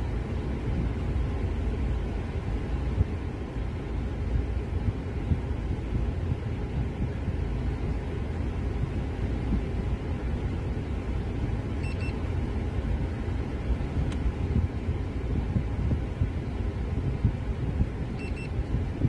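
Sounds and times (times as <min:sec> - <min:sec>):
air conditioning blowing: 0:00.0 - 0:19.0
car engine running: 0:00.0 - 0:19.0
high beeps: 0:11.8 - 0:12.2, 0:18.2 - 0:18.6.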